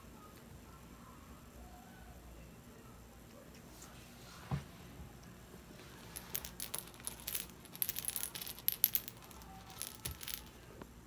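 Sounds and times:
cat toy ball rattling: 0:06.2 - 0:10.6.

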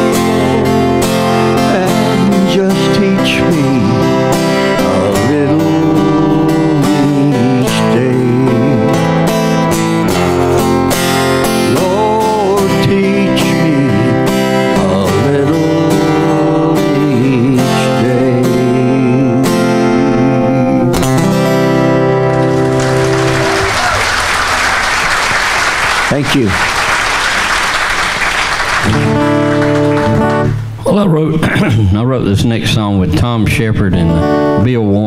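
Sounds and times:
man singing: 0:00.0 - 0:10.7, 0:11.4 - 0:21.3
acoustic guitar strumming: 0:00.0 - 0:25.3, 0:28.6 - 0:30.9, 0:33.8 - 0:35.0
audience applause: 0:22.3 - 0:30.6.

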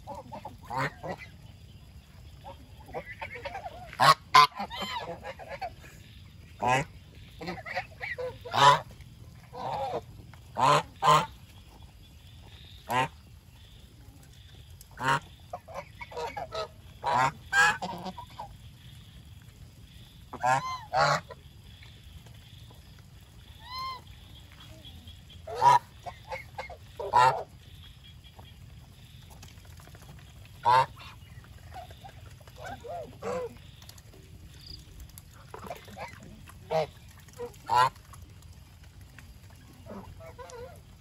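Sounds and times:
geese honking: 0:00.0 - 0:01.4, 0:02.4 - 0:11.7, 0:15.0 - 0:18.5, 0:20.3 - 0:21.4, 0:25.2 - 0:28.6, 0:30.6 - 0:33.8, 0:35.5 - 0:38.2.

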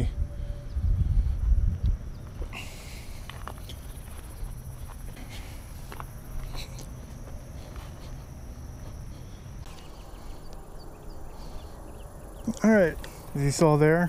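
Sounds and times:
insects trilling: 0:00.0 - 0:14.0
low outdoor rumble: 0:00.0 - 0:14.0
footsteps on dry ground: 0:01.4 - 0:11.8.

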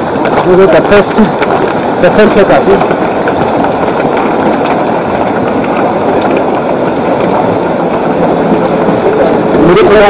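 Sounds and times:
river water rushing: 0:00.0 - 0:10.0.

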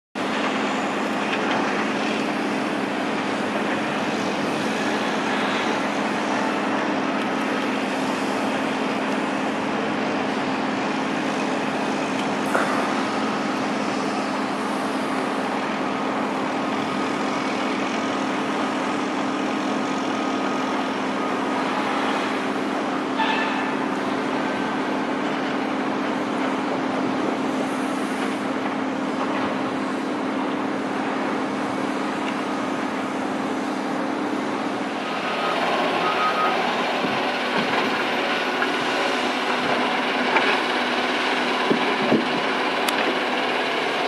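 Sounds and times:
log truck moving: 0:00.2 - 0:44.0
sawmill mechanical din: 0:00.2 - 0:44.0.

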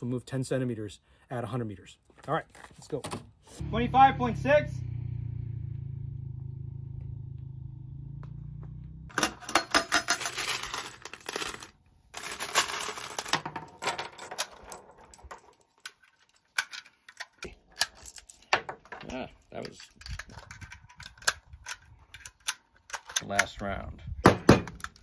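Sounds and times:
low hum: 0:03.6 - 0:09.4
cartridges rattling in metal can: 0:09.1 - 0:23.4
rounds clicking into magazine: 0:19.6 - 0:23.6.

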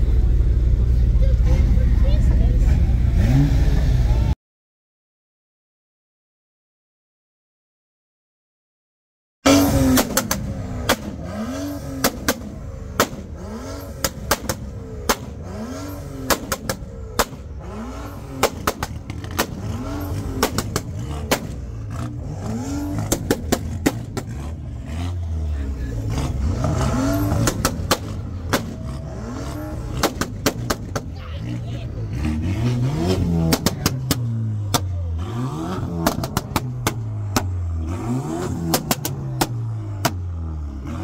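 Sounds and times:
car engine revving: 0:00.0 - 0:04.4, 0:09.4 - 0:41.0
exhaust pops and crackles: 0:09.8 - 0:11.2, 0:12.0 - 0:13.4, 0:14.0 - 0:15.4, 0:16.2 - 0:17.5, 0:18.3 - 0:22.1, 0:23.0 - 0:24.4, 0:27.4 - 0:28.9, 0:29.9 - 0:31.2, 0:33.4 - 0:35.0, 0:36.0 - 0:37.6, 0:38.5 - 0:40.3.

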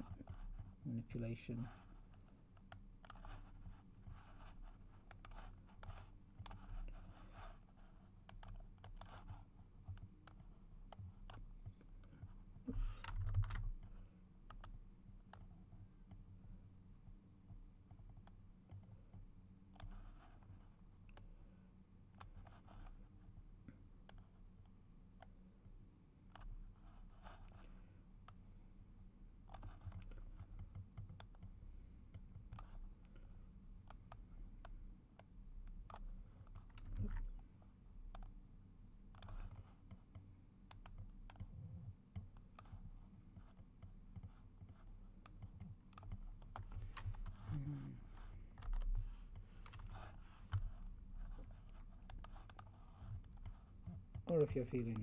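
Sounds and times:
low steady hum: 0:00.0 - 0:55.0
mouse and keyboard clicks: 0:39.1 - 0:41.6, 0:51.6 - 0:55.0.

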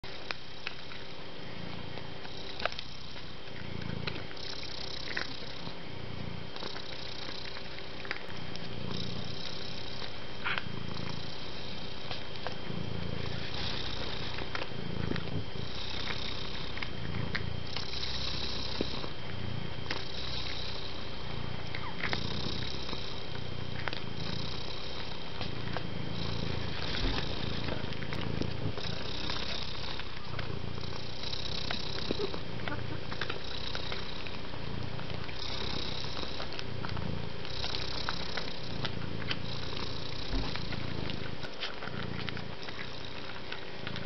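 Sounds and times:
cat purring: 0:00.0 - 0:44.0.

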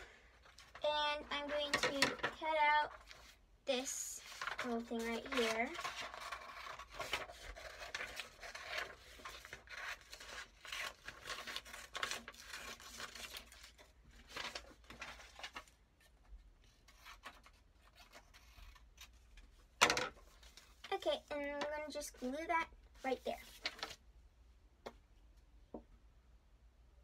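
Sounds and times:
paper rustling: 0:04.2 - 0:19.6, 0:20.2 - 0:24.0.

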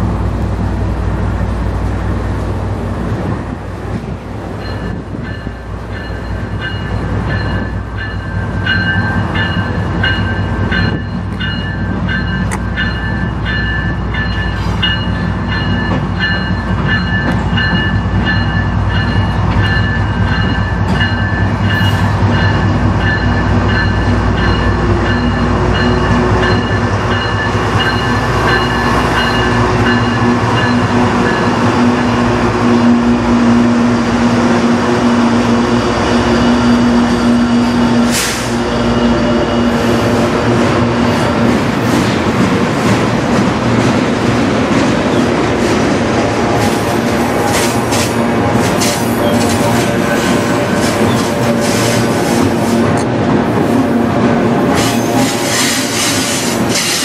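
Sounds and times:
diesel locomotives droning: 0:00.0 - 0:57.0.

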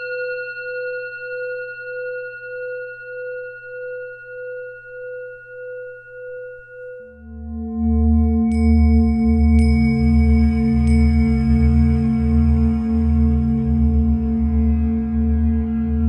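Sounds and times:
long ringing tone: 0:00.0 - 0:07.8.

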